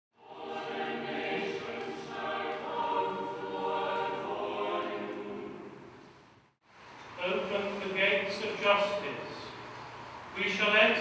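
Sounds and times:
choir singing in harmony: 0.1 - 6.1.

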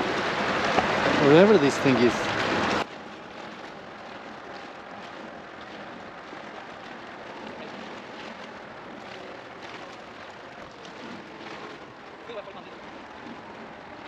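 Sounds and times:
strong wind: 0.0 - 2.9
waves splashing against rocks: 0.0 - 14.0.

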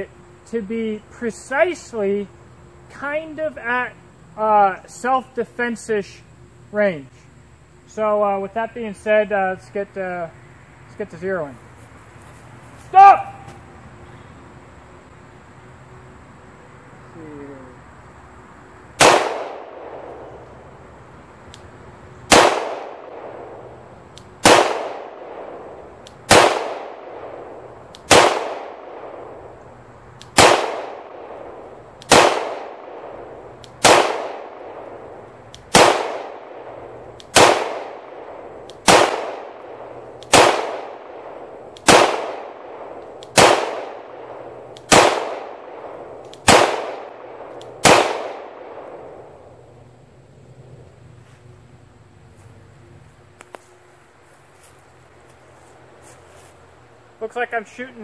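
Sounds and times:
pistol shots with ringing echo: 19.0 - 20.4, 22.3 - 23.8, 24.4 - 29.5, 30.3 - 49.4.

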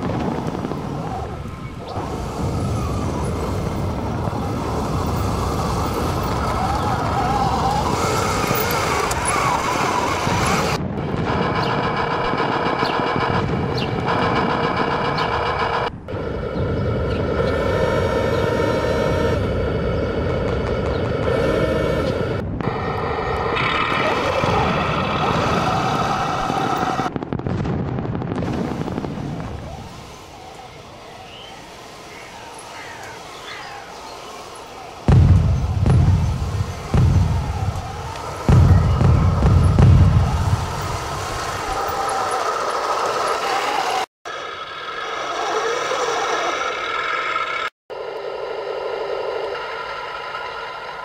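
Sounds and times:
dense crackling rattle: 0.0 - 27.7
simulated tank engine sound: 0.5 - 27.1, 29.9 - 51.0
faint chirps: 30.0 - 39.3.

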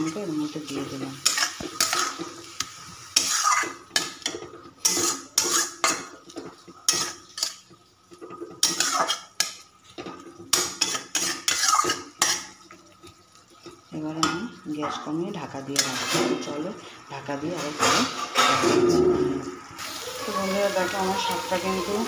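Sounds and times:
metal spatula scraping pan: 0.0 - 7.7, 8.3 - 12.6, 15.7 - 19.3.

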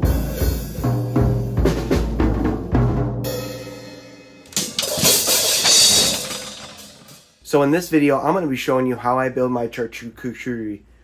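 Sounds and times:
cymbal crash: 3.3 - 7.4.

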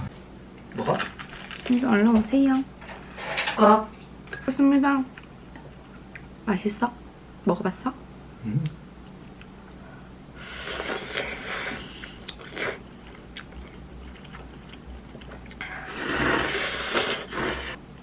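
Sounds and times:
person slurping noodles: 10.4 - 12.8, 15.6 - 17.8.

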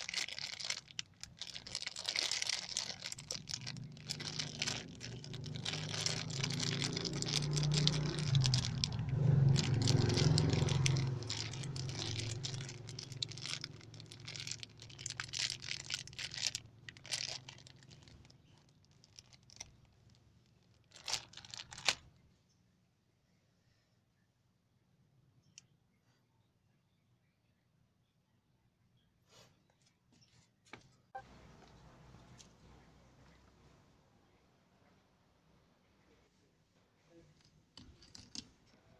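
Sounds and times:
plastic bag crinkling: 0.0 - 22.1, 37.8 - 38.8.

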